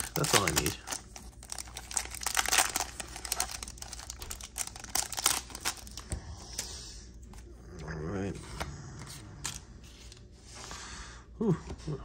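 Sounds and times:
foil wrapper crinkling: 0.0s - 6.1s.

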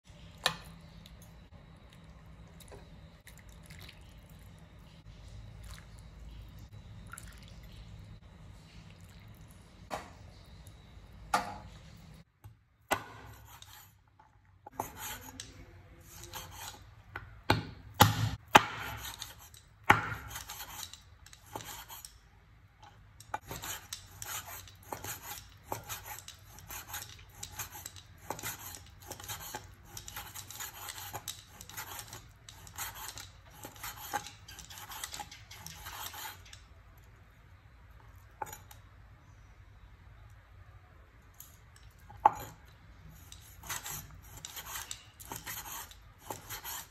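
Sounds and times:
cleaver chopping meat on board: 17.5s - 19.1s.

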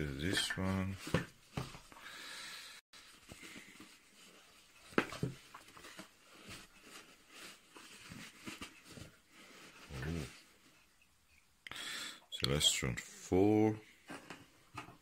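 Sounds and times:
tissue paper rustling: 3.0s - 10.9s.

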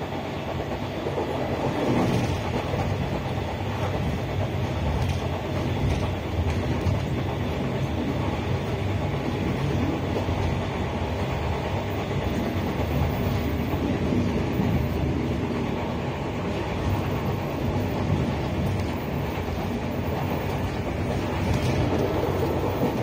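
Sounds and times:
train wheels on rails: 0.0s - 23.0s.

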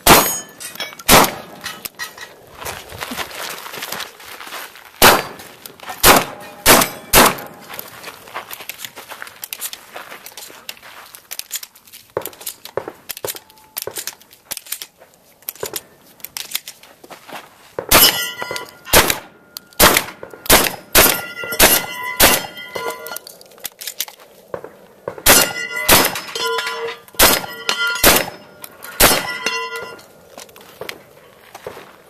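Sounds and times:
shotgun blasts: 0.0s - 0.4s, 1.1s - 1.6s, 5.0s - 5.4s, 6.0s - 7.6s, 17.9s - 22.6s, 24.5s - 26.3s, 27.2s - 29.5s
steel plate clanging: 0.0s - 2.4s, 5.2s - 7.6s, 18.0s - 19.1s, 20.8s - 23.3s, 25.3s - 30.1s.

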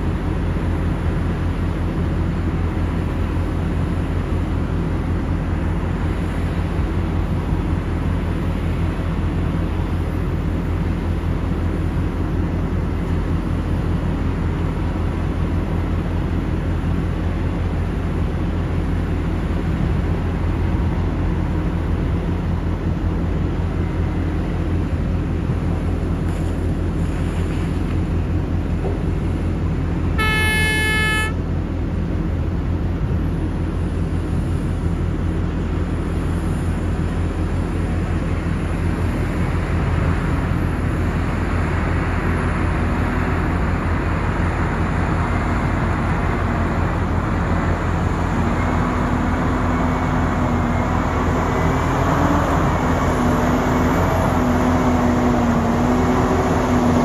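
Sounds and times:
heavy diesel engines droning: 0.0s - 57.0s
horn: 30.2s - 31.4s.

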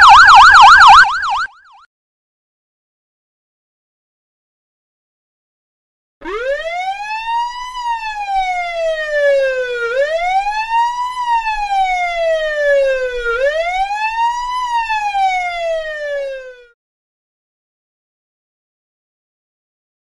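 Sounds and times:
police siren wailing: 0.0s - 1.9s, 6.2s - 16.8s.

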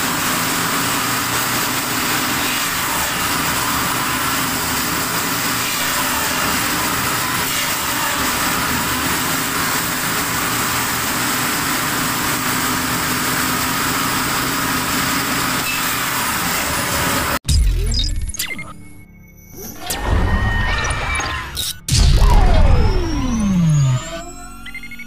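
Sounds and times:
motorised saw running: 0.0s - 17.4s, 21.6s - 25.0s
low boom: 21.9s - 24.5s.

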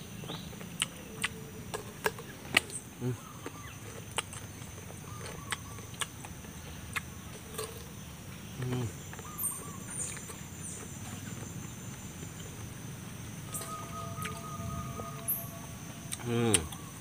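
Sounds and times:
bird chirps: 0.0s - 17.0s
high insect drone: 0.0s - 17.0s
person humming: 16.1s - 16.8s.

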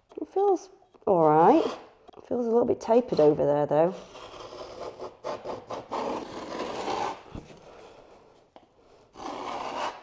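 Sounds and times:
scoring tool scraping board: 1.0s - 1.9s, 3.9s - 10.0s.

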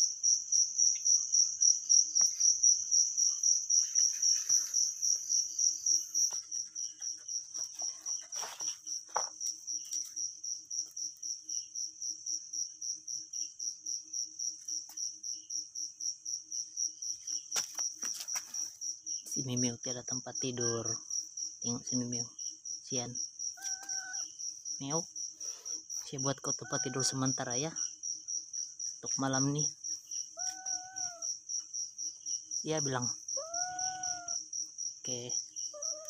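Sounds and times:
cricket chirping: 0.0s - 36.0s.

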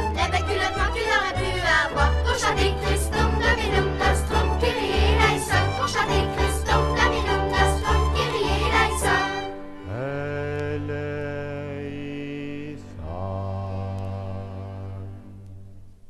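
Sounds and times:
lively folk music: 0.0s - 11.8s.

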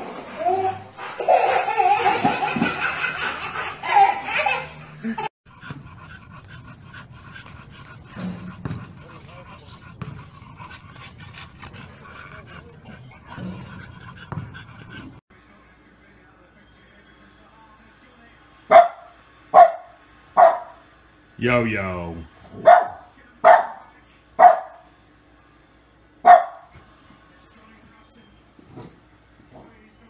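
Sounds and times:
laughter: 1.4s - 5.3s
dog panting: 5.5s - 15.2s.

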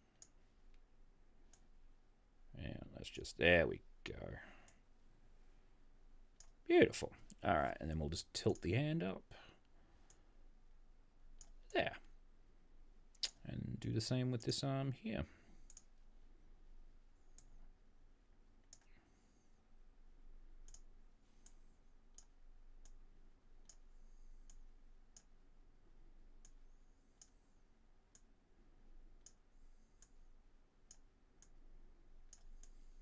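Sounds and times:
computer mouse clicks: 0.1s - 0.8s, 1.5s - 1.7s, 6.4s - 6.6s, 11.4s - 11.7s, 15.6s - 16.0s, 17.2s - 17.6s, 18.6s - 19.0s, 20.6s - 23.0s, 23.6s - 25.4s, 26.4s - 28.3s, 29.2s - 31.6s, 32.2s - 33.0s.

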